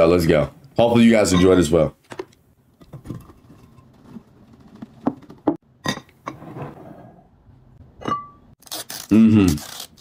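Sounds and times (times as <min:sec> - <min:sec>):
glass clinks and knocks: 0:08.0 - 0:08.5.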